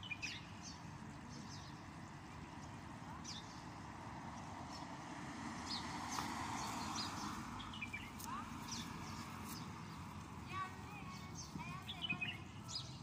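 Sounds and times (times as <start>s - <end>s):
small birds chirping: 0.0s - 13.0s
street traffic hum: 0.0s - 13.0s
vehicle passing: 2.8s - 12.8s.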